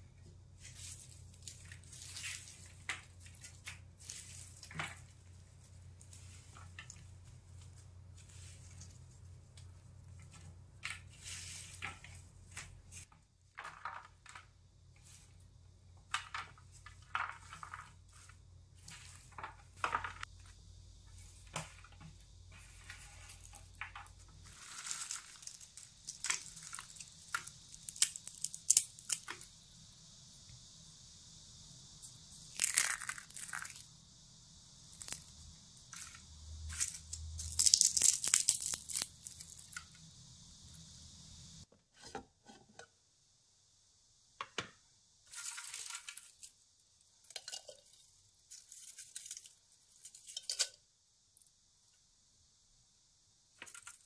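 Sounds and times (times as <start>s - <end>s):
dried leaves crackling and rustling: 0.6s - 13.1s, 16.4s - 29.6s, 32.1s - 34.0s, 34.6s - 40.0s, 45.3s - 46.6s, 47.2s - 50.8s.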